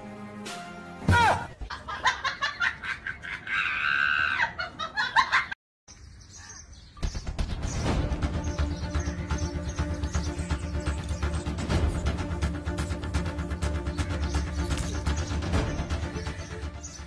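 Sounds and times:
background music: 0.0 - 1.5, 7.0 - 17.0.

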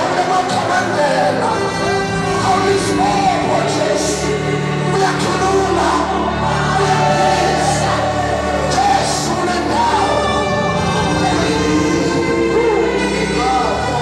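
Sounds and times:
congregation singing a worship song: 0.0 - 14.0.

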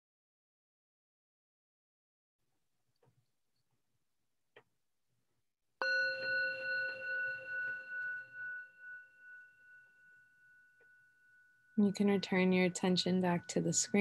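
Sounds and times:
singing bowl struck and ringing: 5.8 - 14.0.

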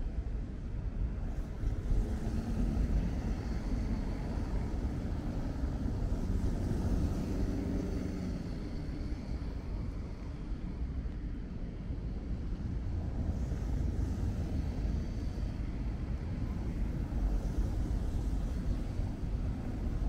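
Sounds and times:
tyres hissing on wet road: 1.8 - 10.0.

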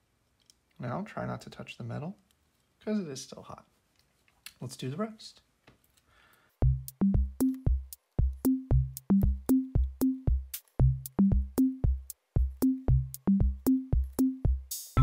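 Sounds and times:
electronic music with drum-machine beat: 6.6 - 15.0.

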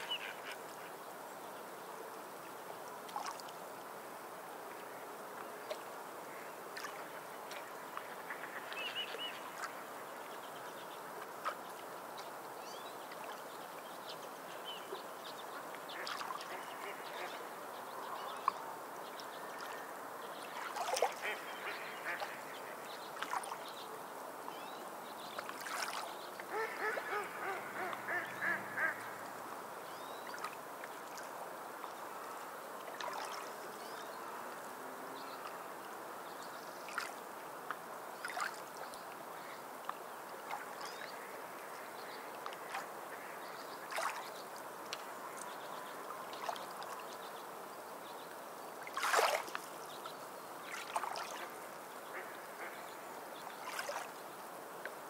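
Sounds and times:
sea-bird calls: 0.0 - 1.0, 25.6 - 30.5.

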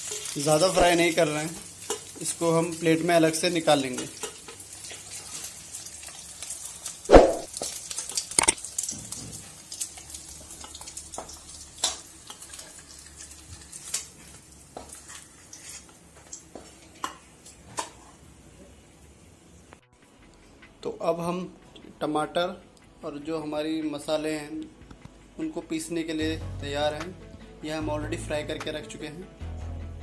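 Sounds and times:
oil sizzling: 0.0 - 18.4
metal spatula scraping a pan: 14.8 - 15.9.

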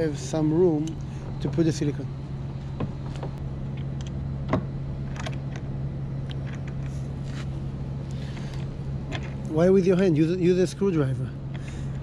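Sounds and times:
low hum: 0.0 - 12.0.

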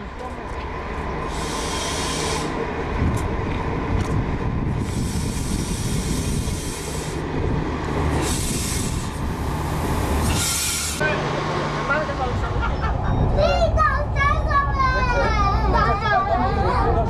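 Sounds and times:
diesel train engine rumbling: 0.0 - 17.0
loud hissing: 1.2 - 2.7, 4.7 - 7.3, 8.0 - 11.1.

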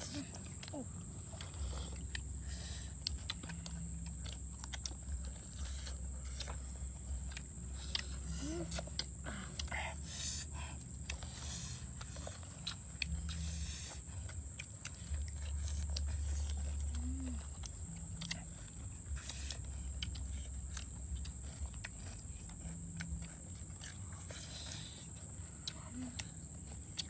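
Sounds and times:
low rumble: 0.0 - 24.5
people chewing food: 0.0 - 27.0.

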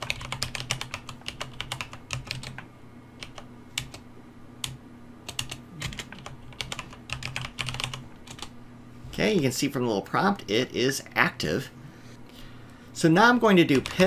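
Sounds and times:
typing on computer keyboard: 0.0 - 4.0, 4.6 - 8.5
faint low hum: 0.0 - 14.0.

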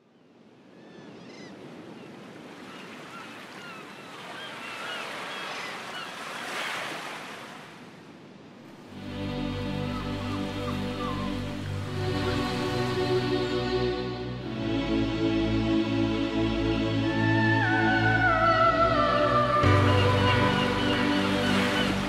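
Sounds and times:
rushing surf wash: 1.3 - 9.3, 17.1 - 22.0
music: 8.9 - 22.0.

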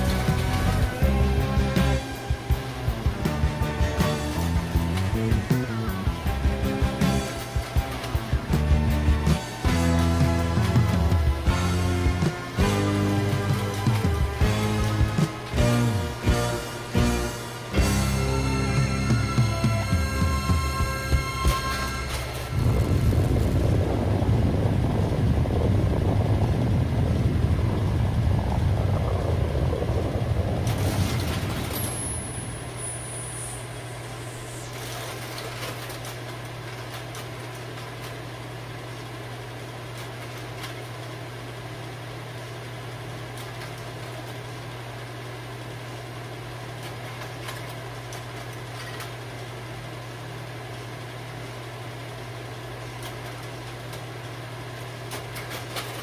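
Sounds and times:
projector fan hum: 0.0 - 56.0
loud deep rumble: 20.3 - 35.0.

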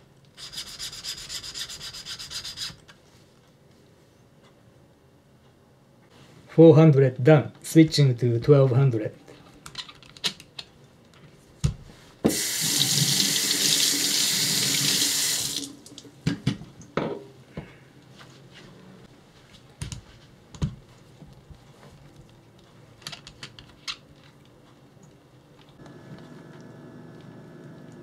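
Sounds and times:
kitchen tap running: 12.3 - 16.1.

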